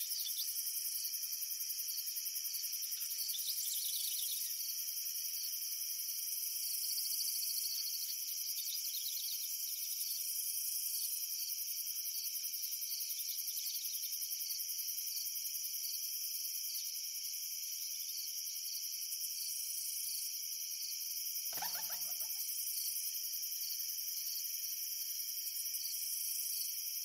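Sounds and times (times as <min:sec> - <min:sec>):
insects trilling: 0:00.0 - 0:16.0, 0:16.6 - 0:27.0.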